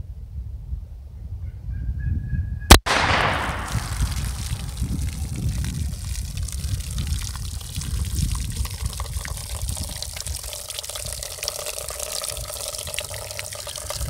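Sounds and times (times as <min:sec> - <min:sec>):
steady low rumble: 0:02.7 - 0:08.7
water spattering on wood: 0:03.4 - 0:13.7
water trickling and dripping: 0:04.0 - 0:14.0.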